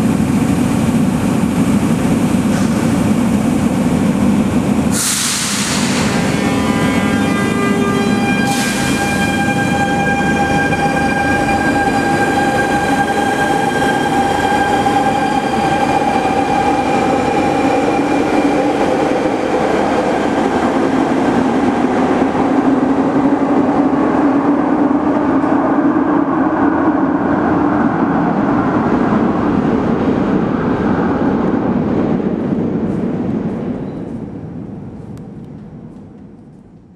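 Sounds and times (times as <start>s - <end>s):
train electric whine: 0.0s - 26.1s
train wheels rumbling on rail: 0.0s - 36.9s.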